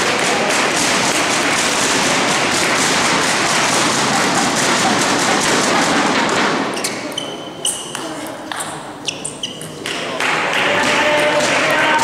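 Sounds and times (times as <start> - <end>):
spectators applauding: 10.2 - 12.0.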